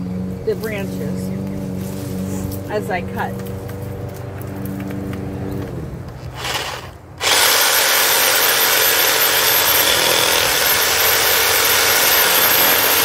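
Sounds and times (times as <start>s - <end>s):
reciprocating saw cutting wood: 6.2s - 13.0s.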